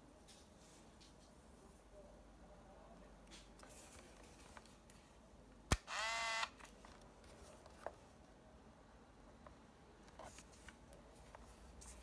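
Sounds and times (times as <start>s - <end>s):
camera film winding motor whine: 5.7s - 6.6s.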